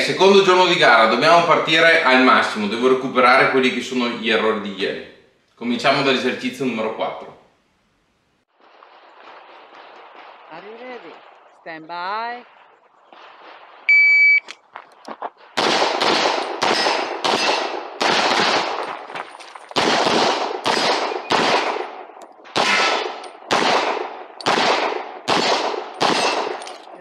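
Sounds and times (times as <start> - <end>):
electronic start beep: 13.9 - 14.5
pistol shots: 15.6 - 19.1, 19.7 - 27.0.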